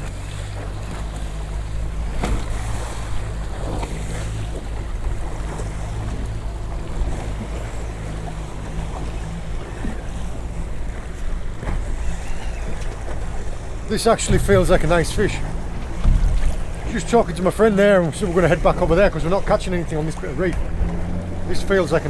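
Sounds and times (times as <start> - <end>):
boat engine running: 0.0 - 22.0
waves around hull: 0.0 - 22.0
wind on microphone: 9.0 - 17.0.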